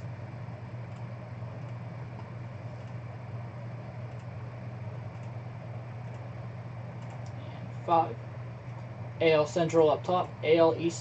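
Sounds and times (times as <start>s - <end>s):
low room and equipment hum: 0.0s - 11.0s
computer mouse clicks: 0.9s - 3.0s, 4.1s - 4.4s, 5.1s - 5.4s, 6.0s - 6.3s, 7.0s - 7.4s.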